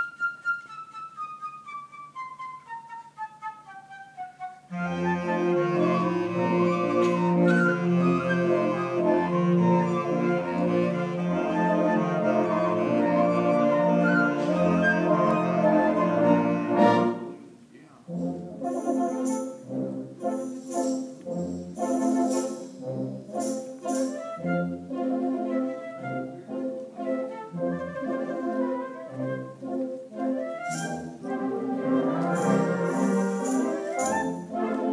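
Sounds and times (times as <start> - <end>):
instrumental ensemble with brass: 0.0 - 34.9.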